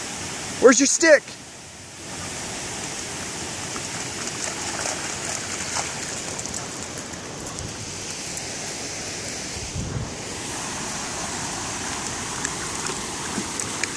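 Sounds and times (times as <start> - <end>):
creek water rushing over rocks: 0.0 - 13.9
dog splashing through water: 3.6 - 9.7, 10.5 - 13.9.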